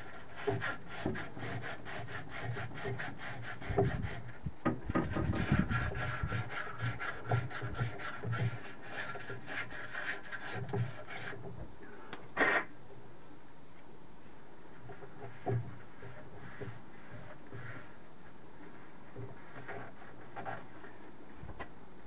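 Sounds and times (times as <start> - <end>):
emery cloth rasping in cylinder: 0.0 - 11.6, 14.7 - 21.2.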